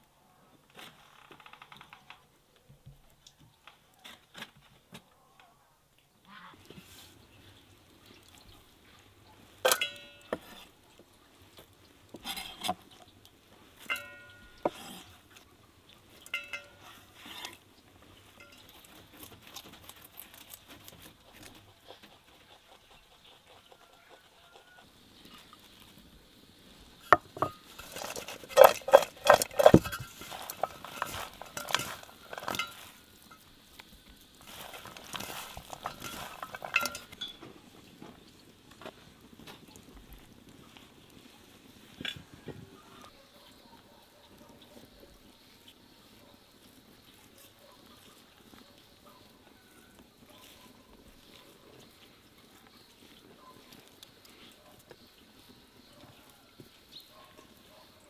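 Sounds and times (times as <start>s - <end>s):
kitchen utensils clinking: 9.6s - 10.7s, 13.8s - 15.1s, 16.2s - 17.5s, 18.4s - 18.9s, 27.1s - 33.4s, 34.5s - 37.5s.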